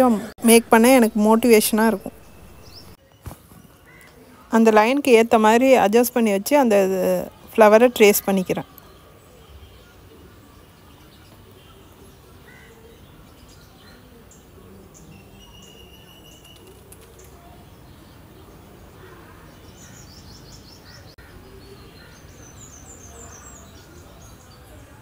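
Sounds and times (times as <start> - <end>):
faint bird chirps: 8.2 - 25.0.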